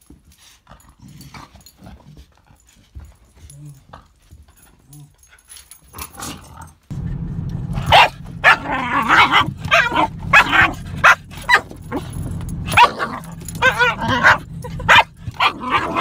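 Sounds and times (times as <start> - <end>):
car cabin road hum: 6.9 - 16.0
dog barking and yipping: 7.7 - 16.0.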